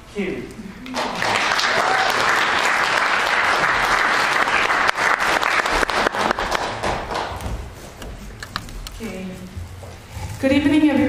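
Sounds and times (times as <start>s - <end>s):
audience applauding: 0.9s - 7.4s.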